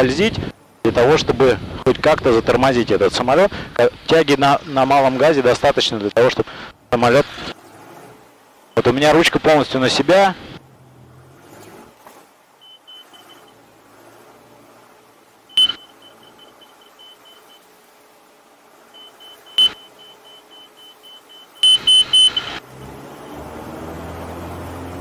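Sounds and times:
airplane engine: 0.0s - 25.0s
stall warning beeps: 12.6s - 13.6s, 15.5s - 17.7s, 18.9s - 22.6s.

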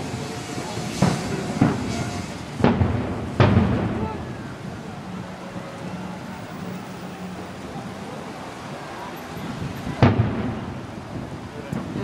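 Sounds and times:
firework boom with echo: 0.0s - 4.3s.

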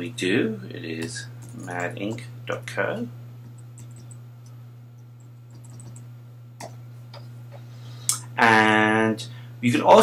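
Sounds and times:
man speaking: 0.0s - 3.1s, 8.4s - 10.0s
low electrical hum: 0.0s - 10.0s
computer keyboard keystrokes: 1.0s - 2.2s, 3.5s - 4.6s, 5.5s - 6.1s.

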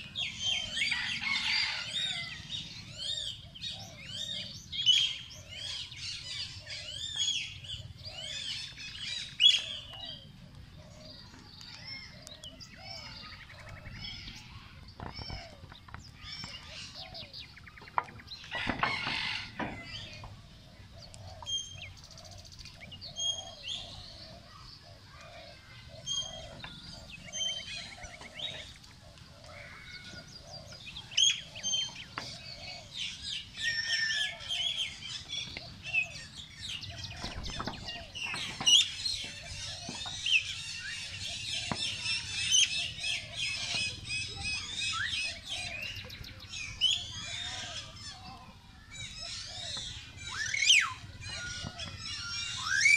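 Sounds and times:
small birds chirping: 0.0s - 52.9s
lower bird call: 16.3s - 52.9s.

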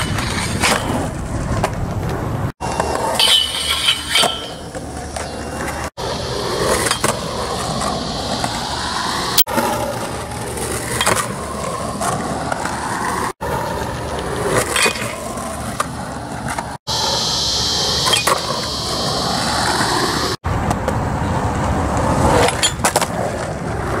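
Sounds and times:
skateboard popping and landing clacks: 0.0s - 8.8s, 9.5s - 16.8s, 21.9s - 24.0s
skateboard wheels rolling on asphalt: 0.0s - 24.0s.

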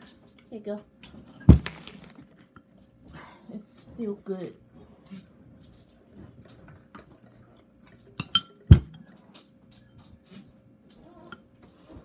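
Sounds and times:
tableware clicks and knocks: 8.2s - 9.1s.

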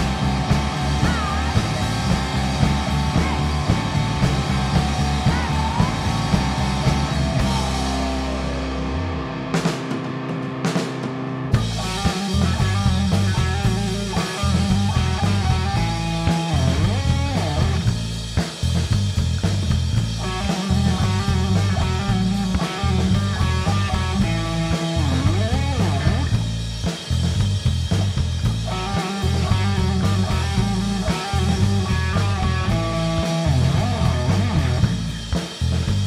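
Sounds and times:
drum hits: 0.0s - 8.6s
live rock band playing: 0.0s - 36.0s.

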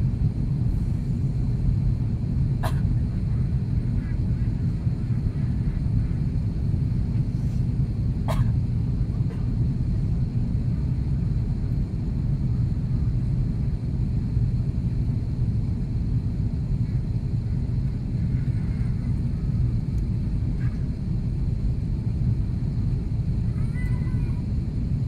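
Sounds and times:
airplane cabin rumble: 0.0s - 25.0s.

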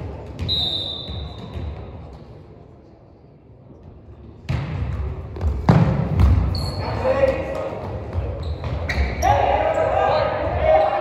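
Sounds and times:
referee's whistle: 0.4s - 1.5s.

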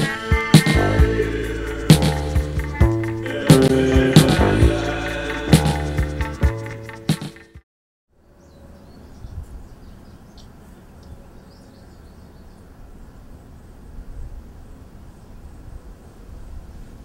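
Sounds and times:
small birds chirping: 8.2s - 13.9s.

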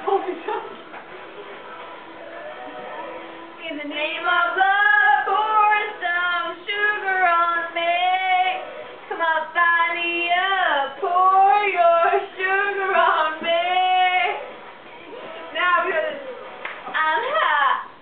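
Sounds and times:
women singing loudly: 3.6s - 14.5s.

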